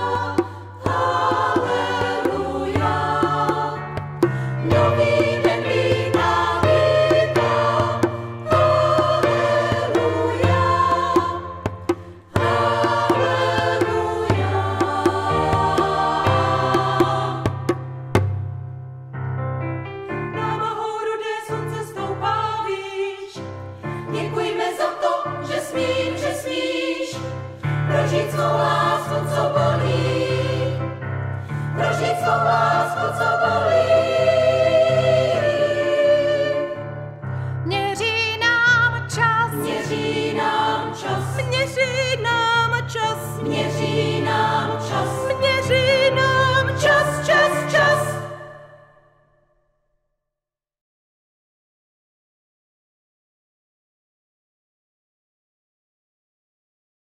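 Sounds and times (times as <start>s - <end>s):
women's choir singing: 0.0s - 17.7s, 20.4s - 23.5s, 24.1s - 31.0s, 31.6s - 36.9s, 39.4s - 48.9s.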